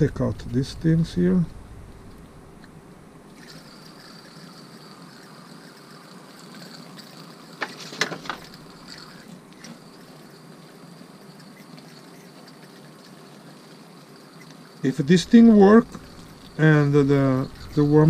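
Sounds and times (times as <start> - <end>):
water spraying from hose: 3.4 - 18.0.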